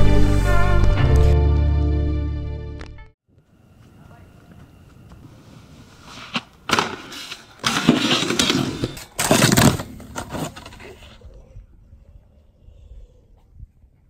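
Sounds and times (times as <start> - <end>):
snowboard scraping along rail: 5.2 - 11.2.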